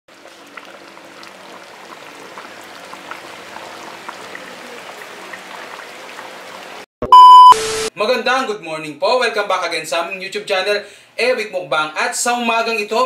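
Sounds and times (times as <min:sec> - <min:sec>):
thick sauce bubbling: 0:00.1 - 0:06.8.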